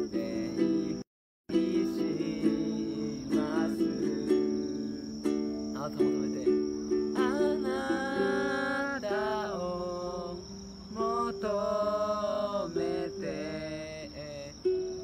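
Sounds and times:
plucked string instrument: 0:00.0 - 0:08.6
crickets trilling: 0:00.0 - 0:15.0
person singing slow melody: 0:00.0 - 0:15.0.

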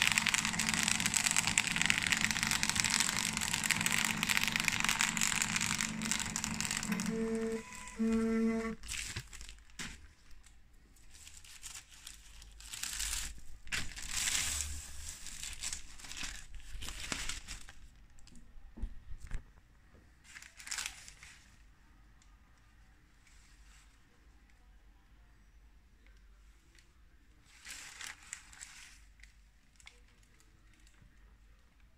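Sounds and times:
short steady motor whine: 0:00.0 - 0:08.8
paper rustling and crinkling: 0:00.0 - 0:18.4, 0:20.2 - 0:21.7, 0:27.4 - 0:31.1.

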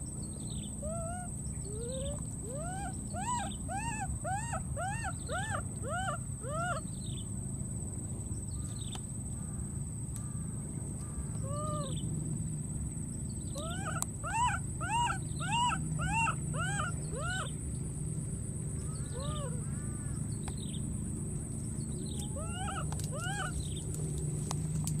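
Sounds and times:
baby monkey crying: 0:00.8 - 0:06.9, 0:11.4 - 0:12.0, 0:13.6 - 0:17.5, 0:19.1 - 0:19.7, 0:22.1 - 0:23.7.

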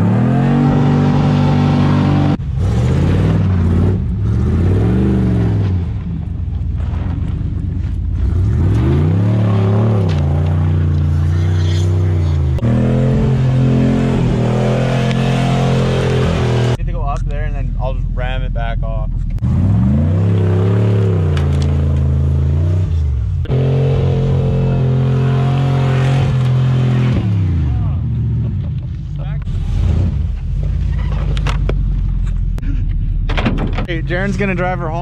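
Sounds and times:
truck engine revving hard: 0:00.0 - 0:06.0, 0:08.2 - 0:16.8, 0:19.4 - 0:28.4.

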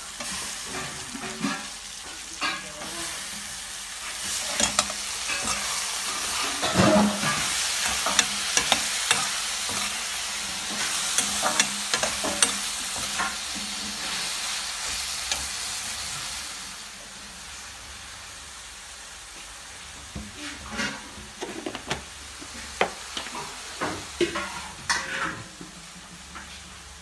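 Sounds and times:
vegetables sizzling in a pan: 0:00.0 - 0:27.0
steel spoon scraping a pan: 0:00.1 - 0:03.3, 0:04.0 - 0:15.8, 0:24.3 - 0:25.5.

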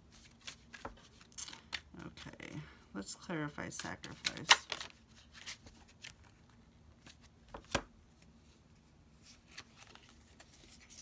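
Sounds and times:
cards shuffling: 0:00.1 - 0:02.3, 0:04.0 - 0:08.3, 0:09.2 - 0:11.0.

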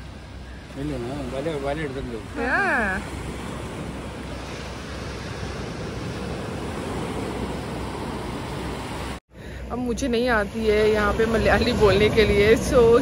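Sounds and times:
small waves breaking on sand: 0:00.0 - 0:09.2.

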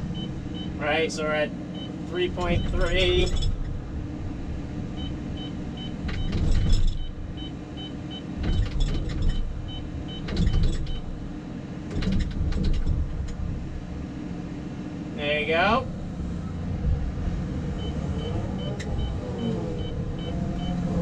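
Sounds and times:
excavator diesel engine running: 0:00.0 - 0:21.0
hydraulics clatter: 0:01.8 - 0:14.1.

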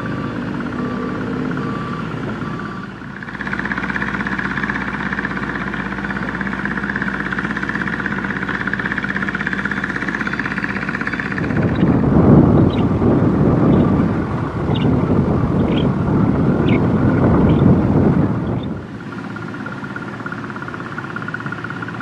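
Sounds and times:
excavator diesel engine running: 0:00.0 - 0:22.0
high engine hum: 0:00.0 - 0:22.0.

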